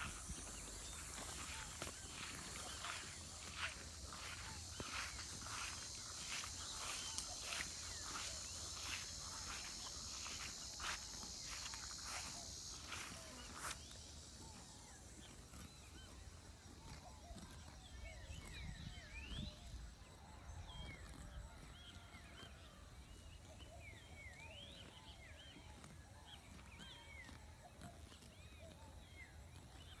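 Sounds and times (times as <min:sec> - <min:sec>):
high insect buzz: 0:00.0 - 0:15.0.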